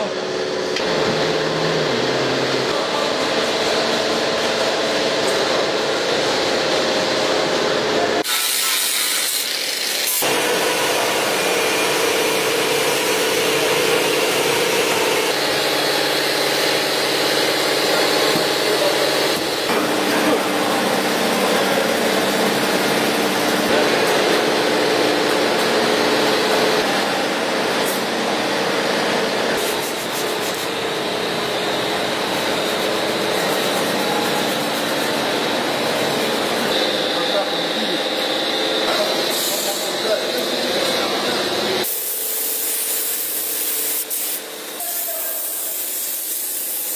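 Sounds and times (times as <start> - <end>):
angle grinder cutting steel: 8.2 - 11.9.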